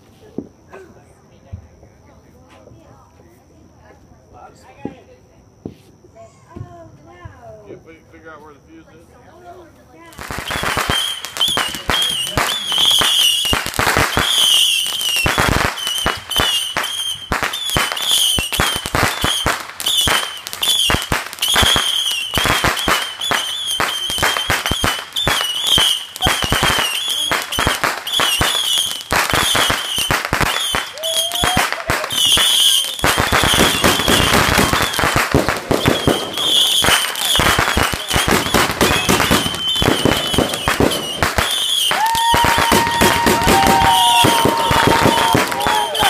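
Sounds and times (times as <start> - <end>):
fireworks crackling and banging: 4.6 - 8.8, 9.4 - 46.0
fireworks whistling: 10.0 - 46.0.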